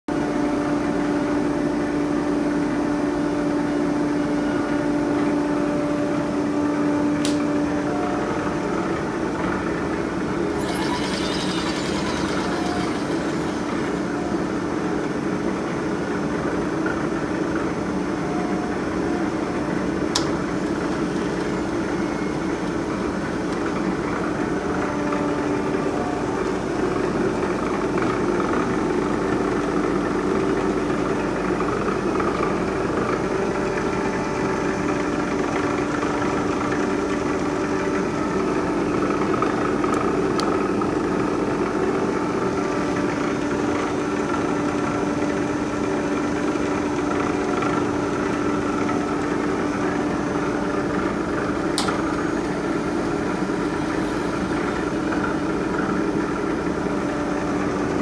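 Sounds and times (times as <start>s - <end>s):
milling machine humming: 6.8s - 16.0s
high whine: 10.2s - 16.3s.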